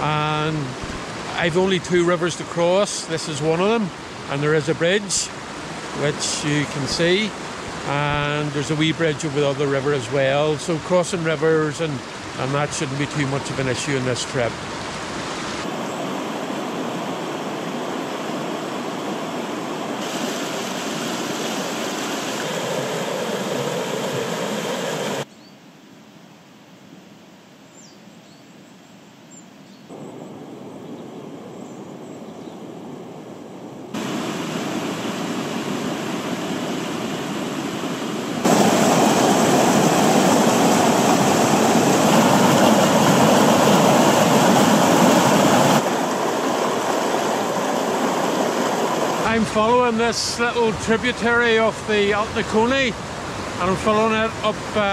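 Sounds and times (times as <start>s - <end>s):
river rushing: 0.0s - 25.3s, 33.6s - 54.9s
stream tumbling over rocks: 17.0s - 25.2s, 34.0s - 54.9s.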